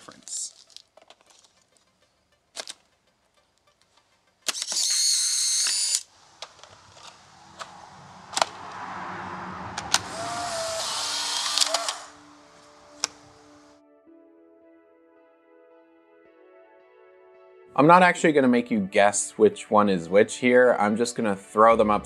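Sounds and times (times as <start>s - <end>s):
camera motor whirring: 4.5s - 6.1s, 10.1s - 12.1s.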